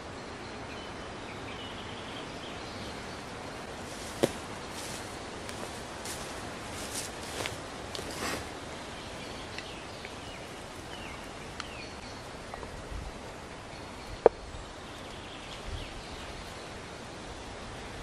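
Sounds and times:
soft handling knocks: 3.9s - 8.2s.

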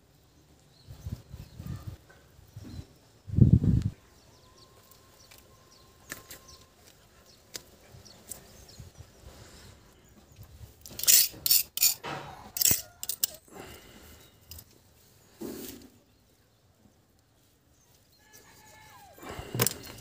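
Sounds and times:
scraping and rustling on concrete: 9.3s - 16.4s, 17.4s - 20.0s.

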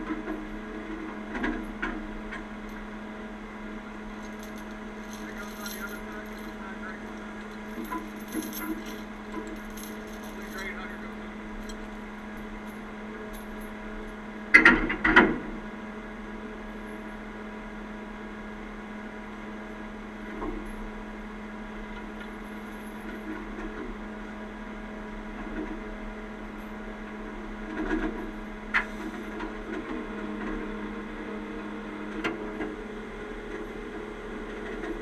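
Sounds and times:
idling trucks humming: 0.0s - 23.2s
heavy chain clanking against steel: 1.3s - 15.1s.

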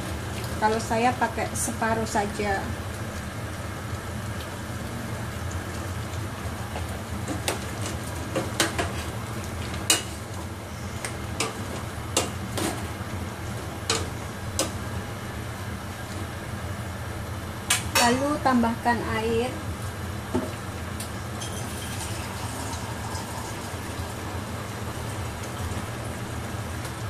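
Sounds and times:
steady low hum: 9.1s - 27.0s.

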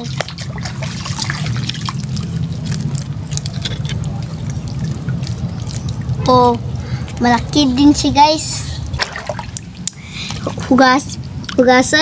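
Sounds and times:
wet mud squelching: 0.0s - 8.0s
steady low hum: 0.0s - 12.0s.

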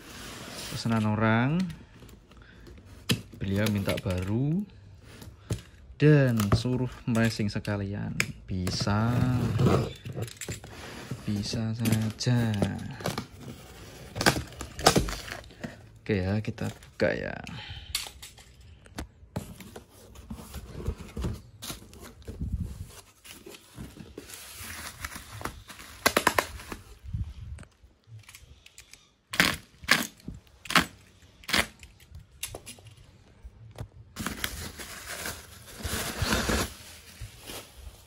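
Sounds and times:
plastic packaging crinkling: 34.2s - 38.0s.

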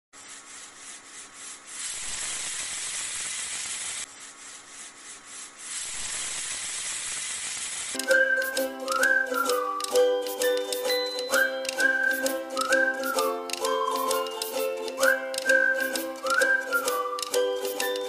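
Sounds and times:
sizzling hiss: 0.2s - 12.2s
whistled tune with backing music: 8.0s - 18.0s.

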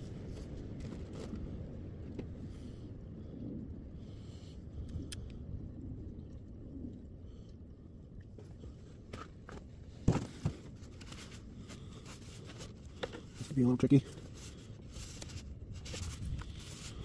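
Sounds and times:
low steady rumble: 0.0s - 17.0s.

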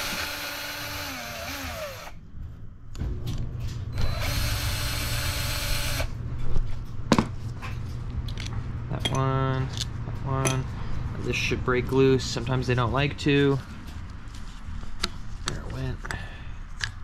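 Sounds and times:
power tool motor whine: 0.0s - 2.2s, 3.9s - 6.1s.

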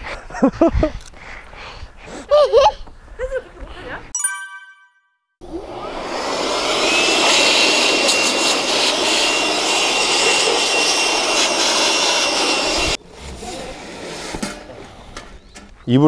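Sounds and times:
battery blower rushing air: 5.4s - 13.0s.

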